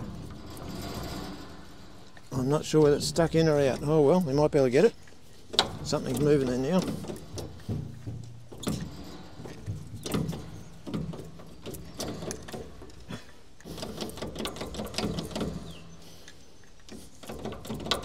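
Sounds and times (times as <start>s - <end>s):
metal lever clicking and knocking: 5.0s - 16.0s, 16.8s - 18.0s.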